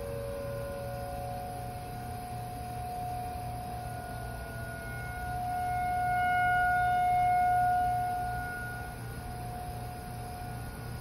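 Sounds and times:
tornado warning siren: 0.0 - 11.0.

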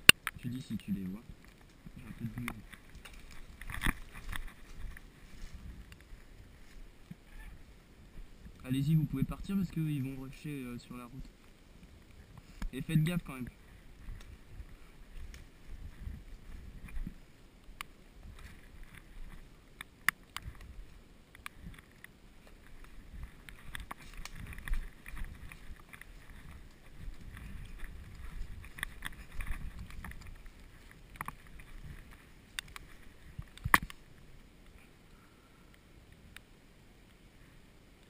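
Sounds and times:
low rumble against microphone: 0.0 - 19.8, 20.4 - 36.3
footsteps in undergrowth: 0.9 - 34.7
clothing and gear rustling: 1.3 - 8.6, 11.3 - 34.3.

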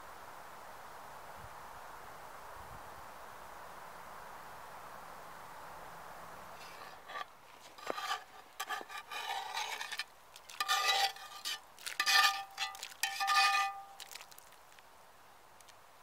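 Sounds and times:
metal-on-metal scrapes: 6.6 - 14.2.

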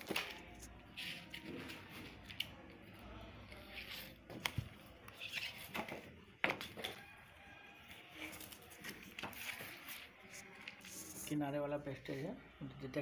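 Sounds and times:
paper and plastic strips rustling: 7.9 - 12.3.

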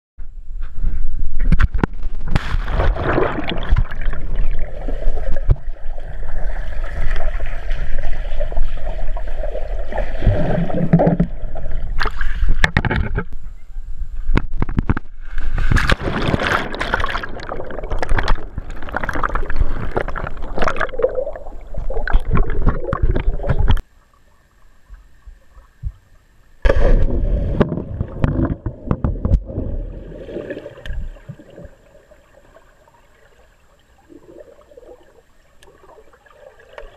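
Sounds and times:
underwater rushing water: 2.4 - 12.6, 15.6 - 23.9, 26.6 - 36.9
churning air bubbles: 2.6 - 12.2, 15.7 - 23.8.

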